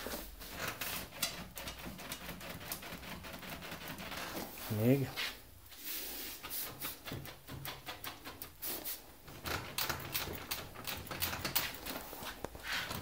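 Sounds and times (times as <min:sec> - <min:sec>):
massage table frame clicking and creaking: 0:00.0 - 0:04.8, 0:06.4 - 0:08.6, 0:09.2 - 0:13.0.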